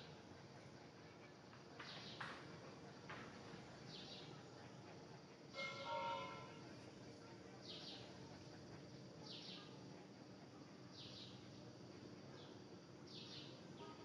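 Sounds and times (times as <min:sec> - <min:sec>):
ringing bell-like tone: 0:05.6 - 0:06.6.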